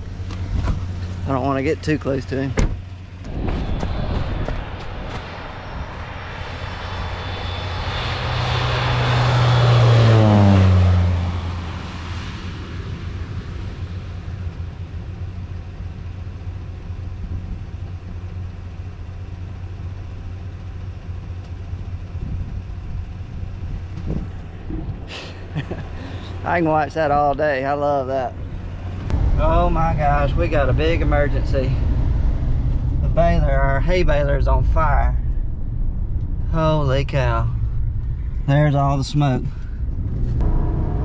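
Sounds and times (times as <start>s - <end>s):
airplane engine passing: 0.0s - 41.0s
steady low hum: 0.0s - 41.0s.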